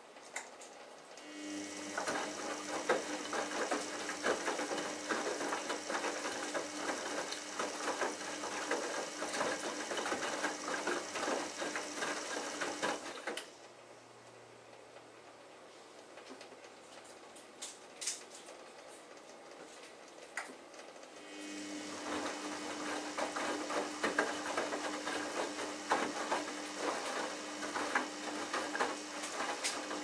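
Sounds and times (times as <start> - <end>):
washing machine motor hum: 1.2 - 14.6, 21.1 - 30.0.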